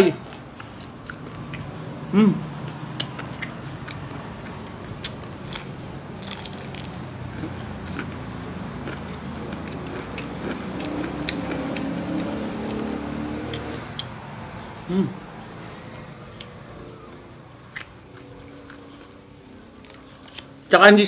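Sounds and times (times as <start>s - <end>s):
steady low hum: 0.0s - 20.7s
crunching fried chicken: 2.6s - 12.4s, 16.4s - 20.5s.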